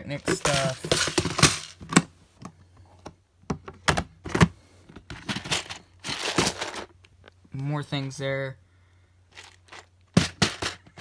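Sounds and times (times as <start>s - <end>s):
plastic boxes clicking and knocking: 0.1s - 7.0s, 9.4s - 11.0s.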